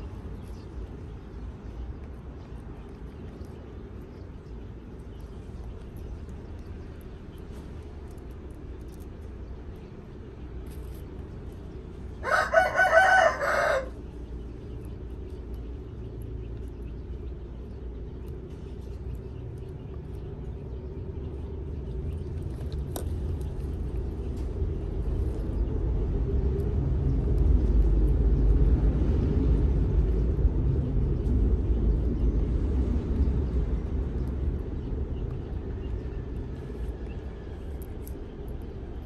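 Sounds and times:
low rumble: 0.0s - 39.0s
rooster crowing: 12.2s - 14.0s.

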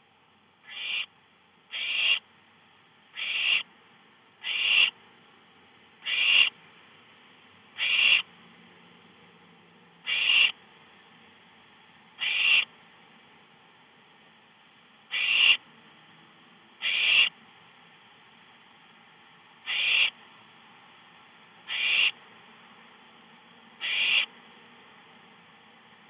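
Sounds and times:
owl nestlings rasping hiss: 0.6s - 1.1s, 1.7s - 2.2s, 3.2s - 3.7s, 4.4s - 5.0s, 6.0s - 6.5s, 7.8s - 8.3s, 10.1s - 10.6s, 12.2s - 12.7s, 15.1s - 15.6s, 16.8s - 17.3s, 19.7s - 20.2s, 21.7s - 22.2s, 23.8s - 24.3s.

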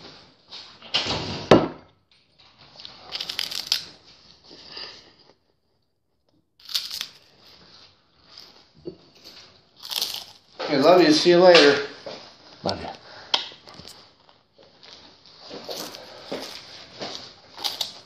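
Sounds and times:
crunchy food chewing: 2.8s - 8.6s, 9.2s - 10.6s, 15.5s - 18.0s.

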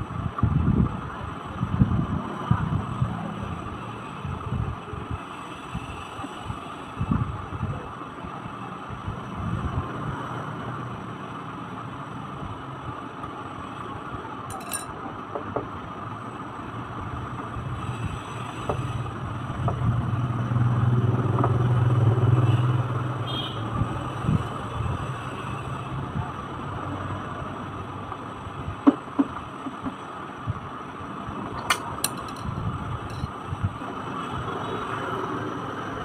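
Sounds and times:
screwdriver clicks and taps: 31.6s - 32.5s.

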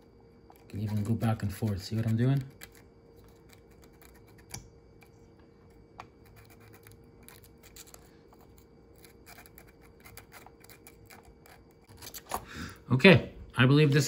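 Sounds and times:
sandpaper scratching and clicking: 0.7s - 2.8s.

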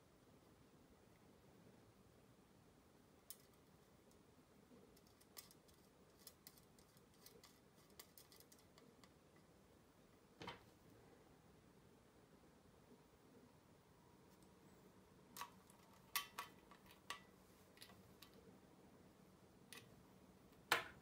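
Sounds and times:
small metal parts clicking: 3.3s - 4.2s, 4.9s - 9.2s, 15.4s - 18.4s.

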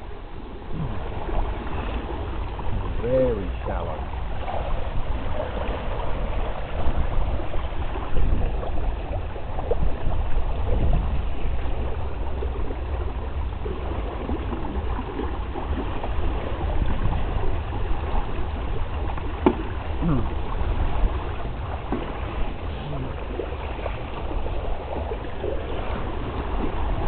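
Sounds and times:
water splashing along boat hull: 0.0s - 27.0s.

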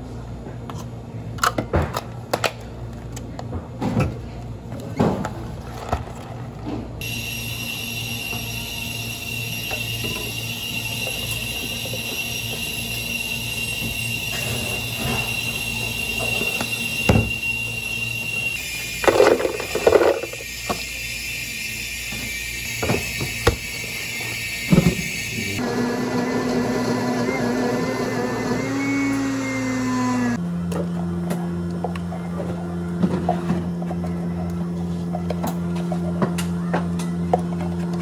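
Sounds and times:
high-pitched whine with hiss: 7.0s - 25.6s.

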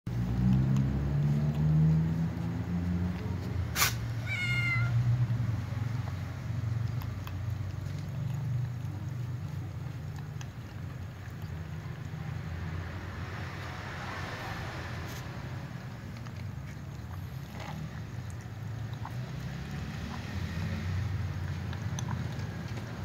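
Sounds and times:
cat meowing: 4.1s - 5.2s.

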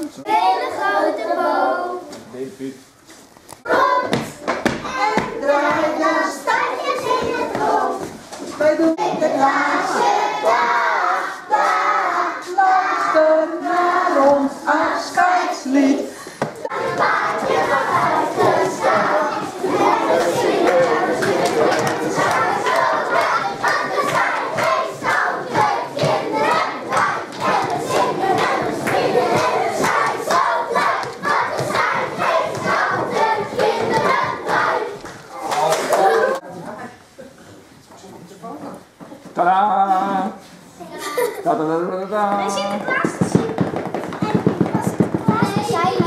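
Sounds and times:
young children singing: 0.0s - 2.2s, 3.6s - 36.4s, 44.3s - 46.0s.

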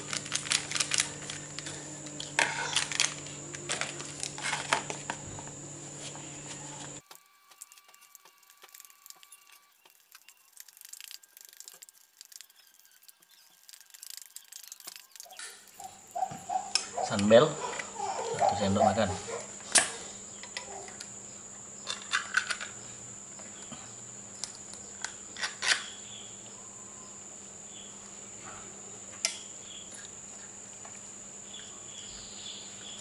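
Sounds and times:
sachet crinkling: 0.0s - 5.0s, 7.0s - 16.2s.

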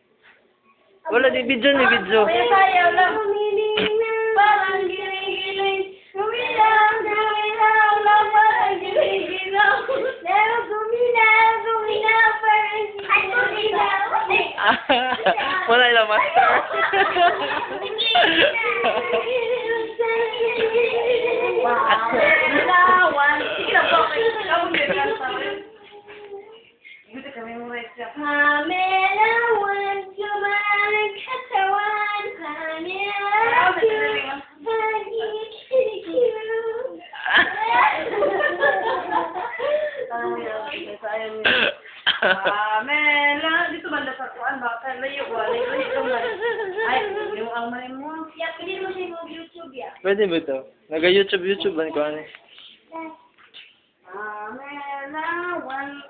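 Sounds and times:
child singing: 1.8s - 14.7s, 16.6s - 41.6s, 54.0s - 56.0s.

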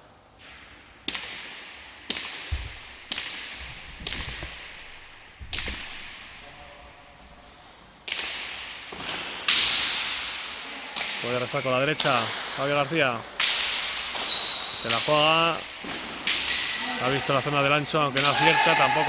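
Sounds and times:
ball smacking with echo: 1.0s - 6.4s, 8.0s - 11.3s, 13.4s - 16.8s.

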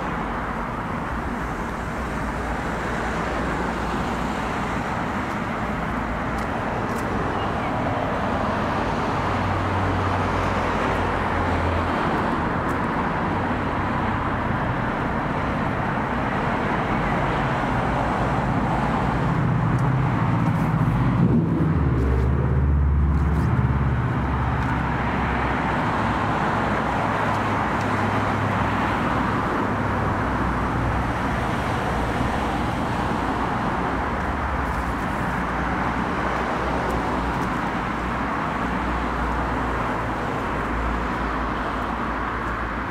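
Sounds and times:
cars passing: 0.0s - 42.9s
vehicle passing with low rumble: 17.6s - 38.2s.

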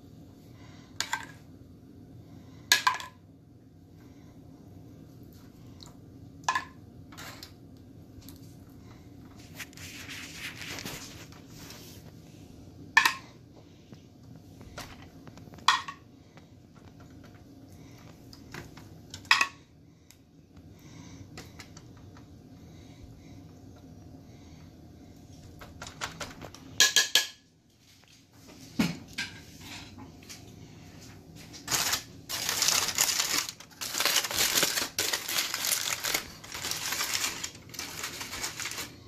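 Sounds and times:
steady low hum: 0.0s - 39.0s
foil crinkling: 9.4s - 12.0s, 31.4s - 39.0s.

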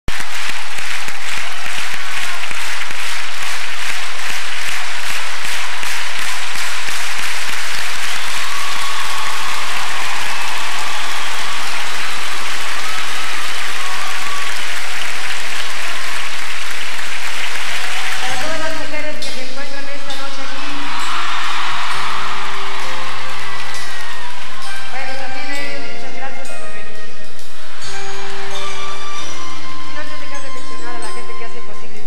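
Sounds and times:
audience applauding: 0.0s - 19.0s, 20.4s - 26.0s.

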